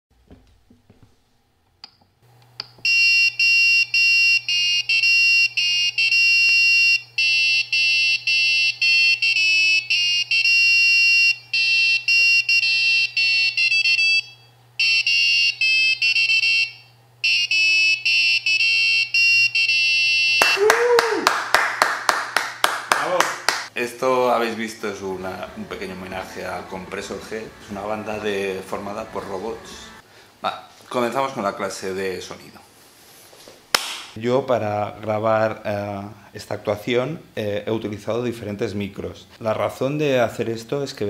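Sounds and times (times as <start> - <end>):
steady low hum: 21.7 - 40.7.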